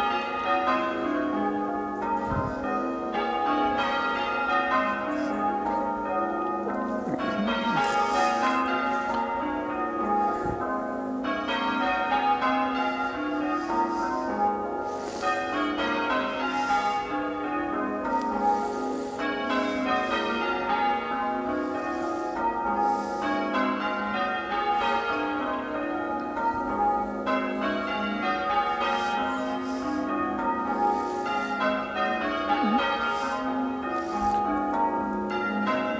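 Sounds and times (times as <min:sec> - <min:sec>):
church bells ringing changes: 0:00.0 - 0:35.9.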